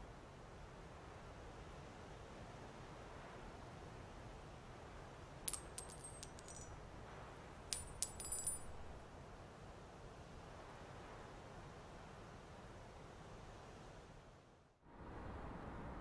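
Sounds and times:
small metal pieces clinking: 0:05.5 - 0:06.8, 0:07.7 - 0:08.9.

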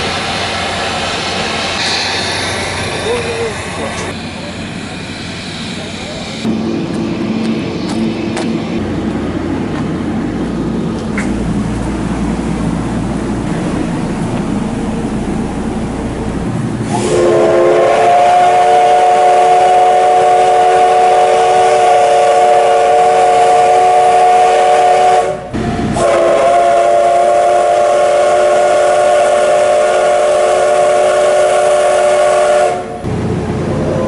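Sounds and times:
steam whistle blasts: 0:16.9 - 0:33.0.

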